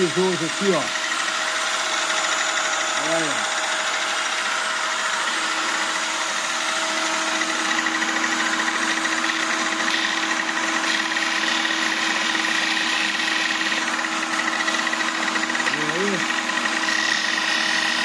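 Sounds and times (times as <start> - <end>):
disc sander motor whine: 0.0 - 18.0.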